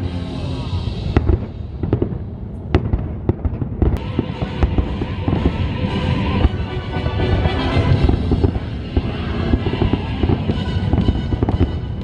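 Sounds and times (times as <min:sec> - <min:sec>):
music: 0:00.0 - 0:01.4, 0:04.0 - 0:12.0
fireworks bangs and crackles: 0:00.8 - 0:12.0.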